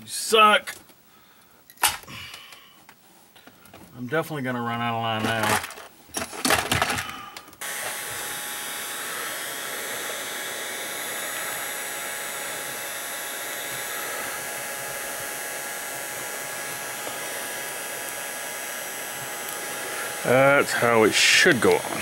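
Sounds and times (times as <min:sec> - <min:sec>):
faint motor hum: 0:06.4 - 0:22.0
heat gun blowing air: 0:07.6 - 0:22.0.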